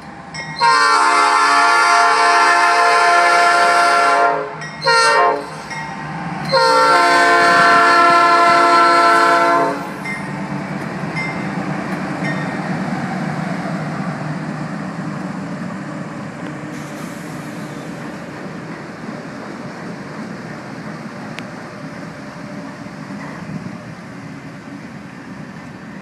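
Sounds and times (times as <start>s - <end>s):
passing locomotive rumble: 0.0s - 26.0s
locomotive horn blasts: 0.6s - 5.6s, 6.5s - 10.0s.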